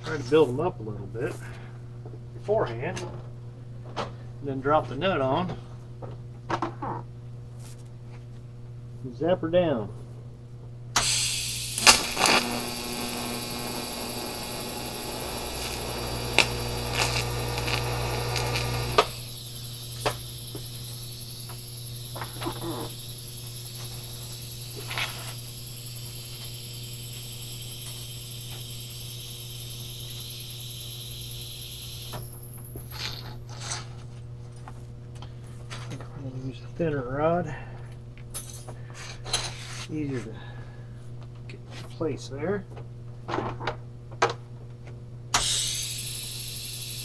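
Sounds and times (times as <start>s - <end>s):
faint hum: 0.0s - 45.4s
welding arc buzzing: 11.0s - 33.6s, 45.3s - 47.0s.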